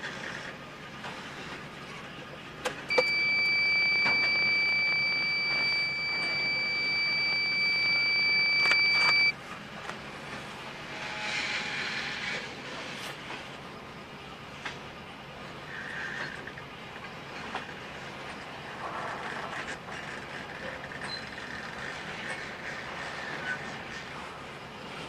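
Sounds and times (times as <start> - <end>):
freight cars rolling: 0.0 - 25.0
steady high electronic beep: 2.9 - 9.3.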